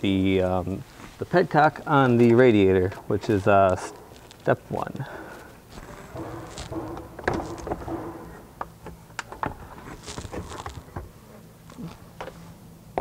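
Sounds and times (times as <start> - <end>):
plastic panel scraping: 5.7 - 8.6, 9.4 - 11.2.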